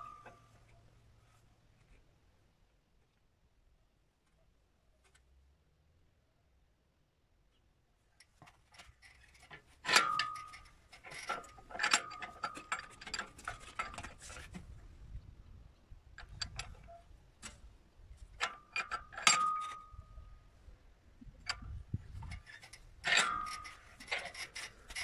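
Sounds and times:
metallic ring: 0.0 - 0.5, 9.8 - 14.0, 18.5 - 20.2, 22.2 - 25.0.

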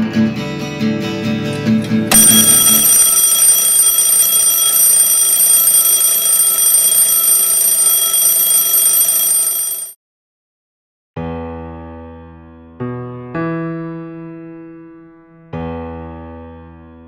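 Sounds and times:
high-pitched alarm ringing: 2.1 - 10.0.

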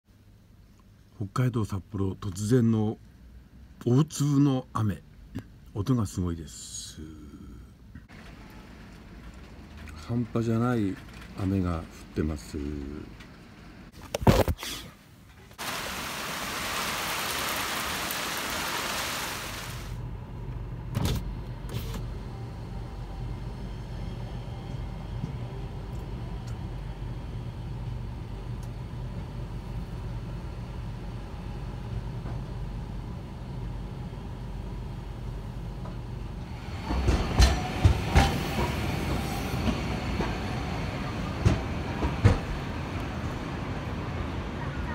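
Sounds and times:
streetcar humming and rumbling: 5.0 - 13.9, 19.9 - 44.9
hiss: 15.6 - 20.0.

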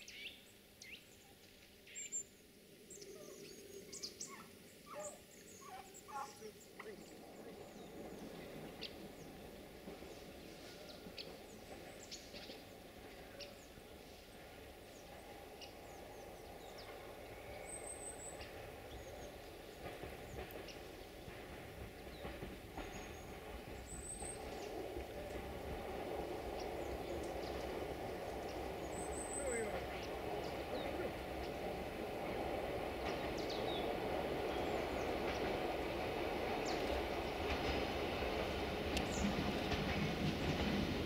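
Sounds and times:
turkeys calling softly: 3.0 - 7.3.

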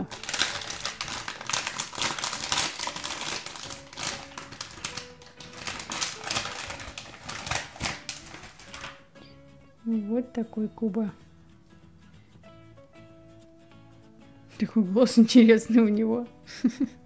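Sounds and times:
foil packet crinkling: 0.0 - 9.1.

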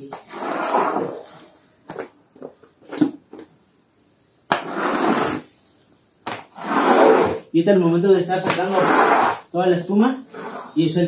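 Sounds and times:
squeegee scraping wet floor: 0.1 - 1.6, 4.5 - 5.6, 6.3 - 7.5, 8.4 - 9.5, 10.3 - 10.8.

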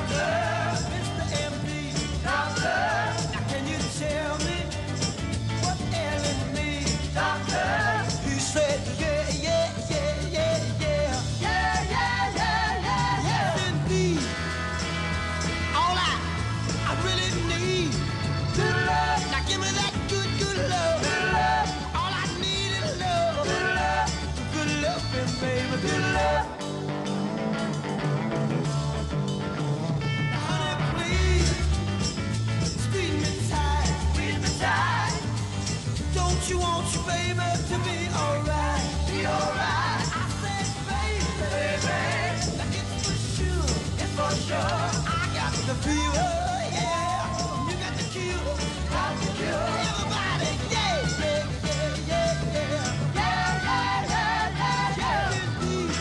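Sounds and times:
steady drum beat: 0.0 - 27.0, 29.7 - 56.0
rock song with singing: 0.0 - 56.0
person singing: 36.2 - 56.0.

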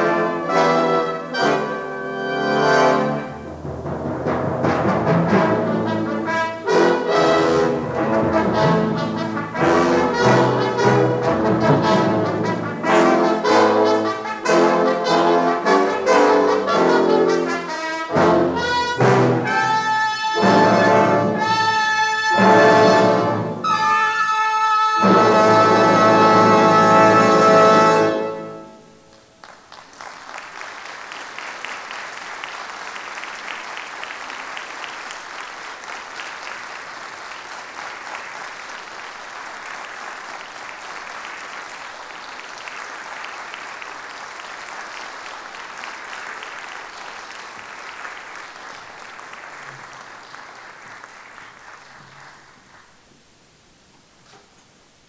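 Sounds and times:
audience applauding: 29.1 - 53.1.

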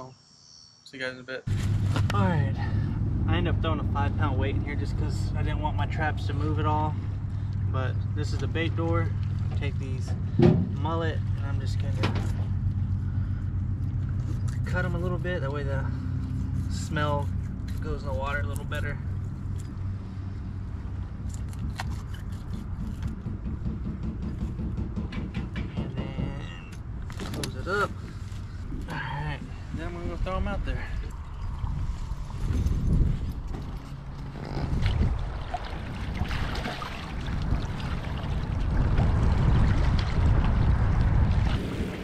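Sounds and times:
steady low rumble: 1.5 - 42.0
wind buffeting microphone: 1.5 - 42.0
water splashing from wading: 34.7 - 42.0.

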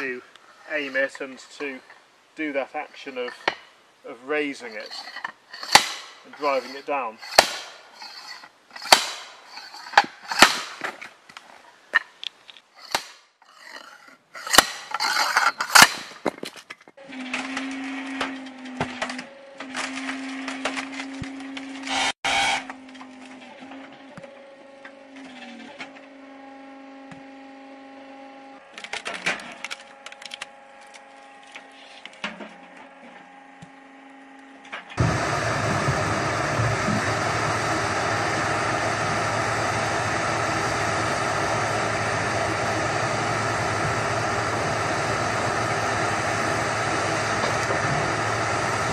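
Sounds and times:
log splitter motor humming: 4.3 - 10.7, 17.0 - 48.9
loud machine noise: 4.6 - 10.5, 17.0 - 24.2, 35.0 - 48.9
steel wedge knocking into log: 5.6 - 6.6, 7.2 - 7.8, 8.8 - 9.3.

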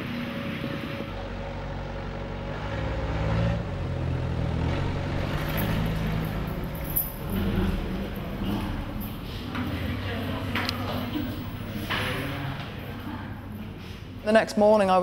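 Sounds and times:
vehicle engine humming: 0.0 - 14.2.

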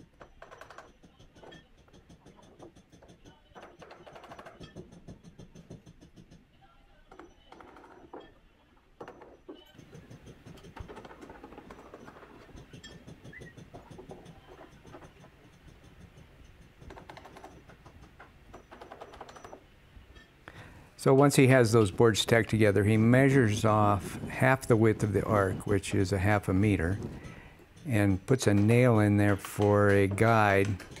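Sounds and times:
hammer tapping nails into wood: 9.8 - 19.6.

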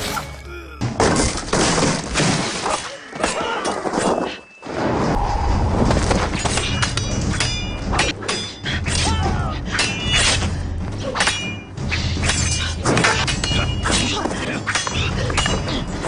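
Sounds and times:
weapons clashing: 6.2 - 16.0.

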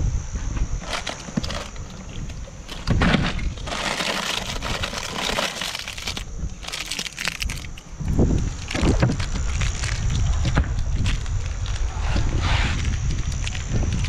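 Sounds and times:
ice cubes clattering: 0.8 - 7.8
plastic wrappers crinkling: 0.8 - 11.9.

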